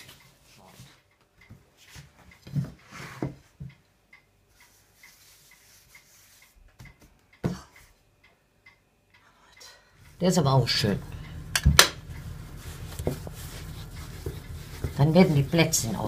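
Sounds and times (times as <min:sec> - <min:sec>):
faint regular ticking: 0:03.6 - 0:16.0.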